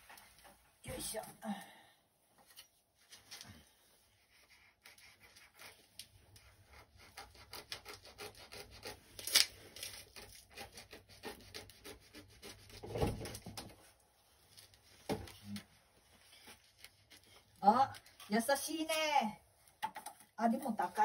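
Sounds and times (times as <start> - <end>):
knife scraping bamboo husk: 4.2 - 13.4, 16.2 - 18.3.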